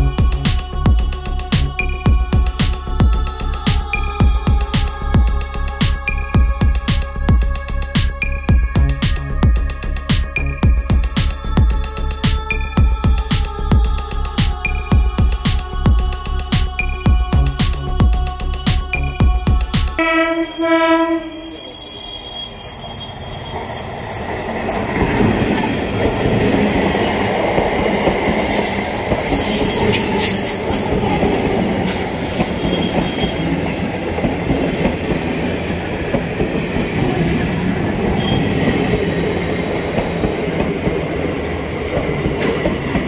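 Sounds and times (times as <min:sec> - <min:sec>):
train wheels rumbling on rail: 0:22.5 - 0:43.0
clicks and clanks from track: 0:41.9 - 0:43.0.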